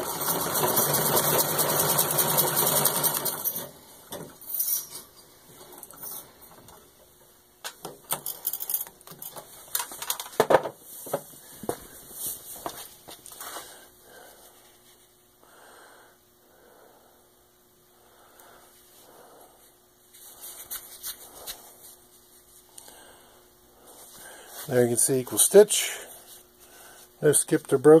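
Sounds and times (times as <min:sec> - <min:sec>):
sewing machine clattering: 0:00.0 - 0:04.4.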